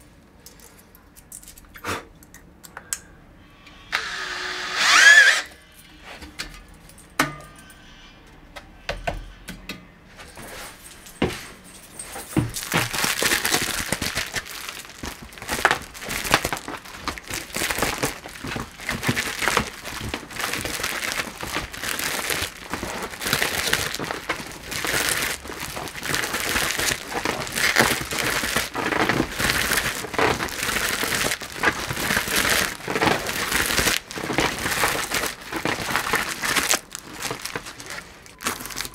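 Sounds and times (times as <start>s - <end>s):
foil duct hose crinkling: 10.2s - 38.9s.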